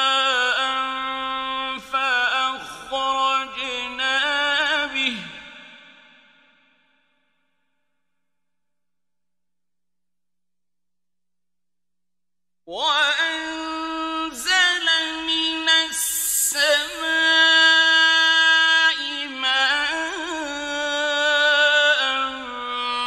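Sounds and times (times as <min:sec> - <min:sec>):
man chanting melodically: 0:00.0 - 0:06.1, 0:12.7 - 0:23.0.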